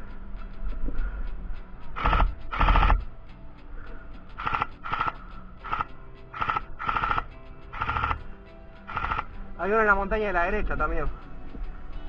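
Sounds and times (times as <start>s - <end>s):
airsoft rifle bursts: 2.0s - 3.0s, 4.4s - 8.3s, 8.9s - 9.3s.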